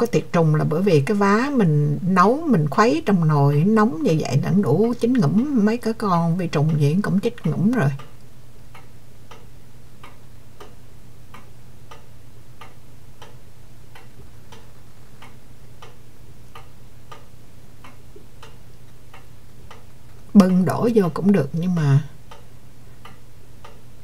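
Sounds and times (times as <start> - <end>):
low steady hum: 0.0 - 24.0
steady ticking: 0.0 - 24.0.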